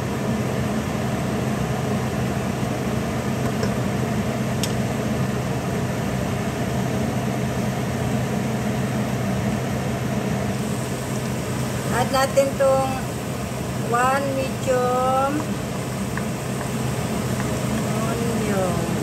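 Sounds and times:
kitchen fan motor humming: 0:00.0 - 0:19.0.

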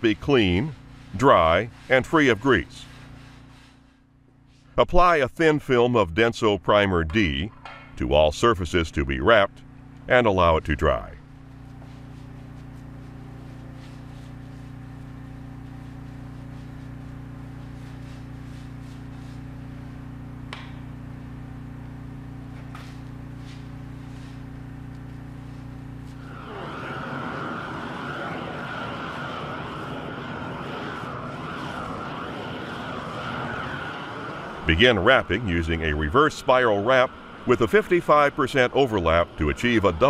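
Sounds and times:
low hum with held tones: 0:00.0 - 0:40.0
gas flame torch hissing: 0:25.6 - 0:40.0.

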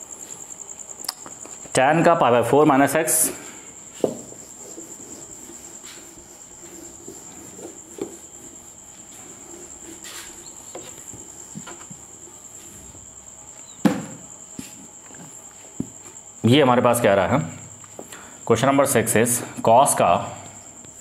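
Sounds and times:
duster rubbing whiteboard: 0:03.8 - 0:13.1
soft knocks: 0:13.8 - 0:14.2.

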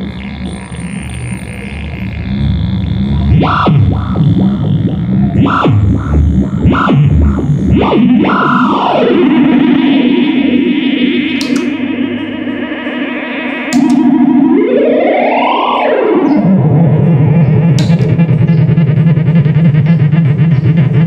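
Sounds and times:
oscillating guitar pedal tone: 0:00.0 - 0:21.0.

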